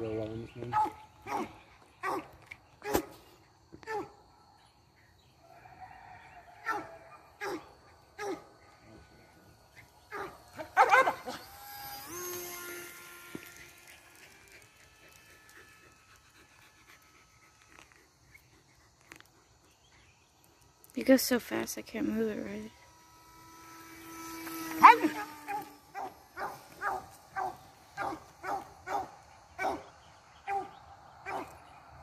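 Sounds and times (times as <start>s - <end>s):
dog barking: 0.7s - 2.3s, 6.6s - 8.5s, 10.1s - 11.2s, 24.8s - 29.9s, 30.5s - 31.5s
steady hum with higher tones: 19.7s - 32.0s.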